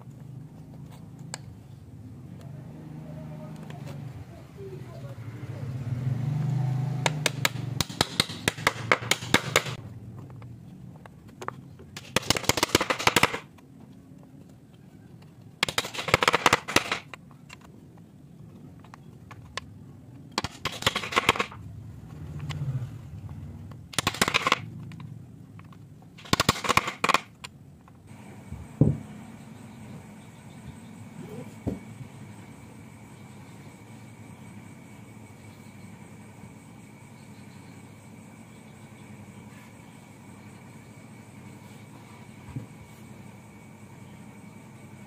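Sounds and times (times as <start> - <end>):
wooden strips clicking into board: 7.0 - 9.8, 11.9 - 13.5, 15.6 - 17.7, 20.4 - 21.6, 23.9 - 24.6, 25.6 - 27.5.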